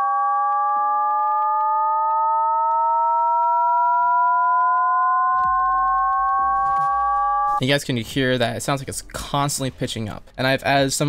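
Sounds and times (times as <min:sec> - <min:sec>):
endlessly rising synth tone: 0:00.0 - 0:07.6.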